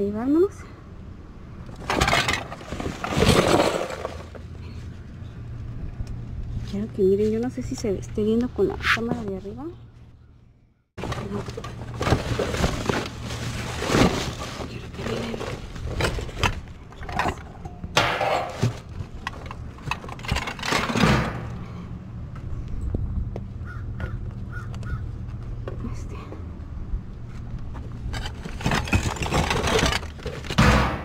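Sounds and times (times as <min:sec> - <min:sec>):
trash rustling and crinkling: 0:01.6 - 0:04.9, 0:11.0 - 0:21.8, 0:27.3 - 0:31.0.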